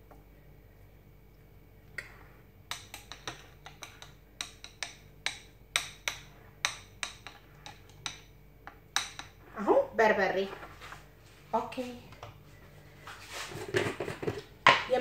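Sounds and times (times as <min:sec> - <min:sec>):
metal spoon clinking on ceramic bowl: 0:02.7 - 0:09.4.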